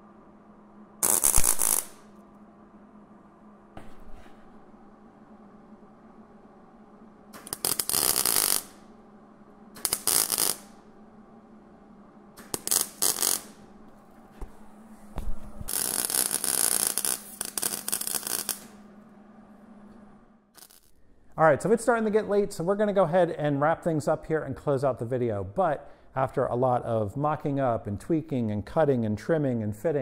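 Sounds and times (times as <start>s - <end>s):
welder arc crackling: 1.0s - 2.1s, 7.3s - 8.9s, 9.8s - 10.8s, 12.4s - 13.7s, 15.6s - 18.8s, 20.6s - 20.9s.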